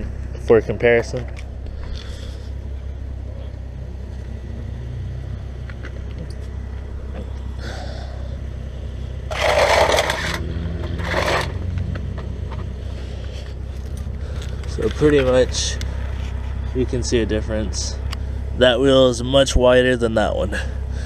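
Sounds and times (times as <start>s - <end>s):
steady low rumble: 0.0s - 21.0s
tire rubbing scrapes: 9.2s - 11.9s, 12.6s - 17.2s.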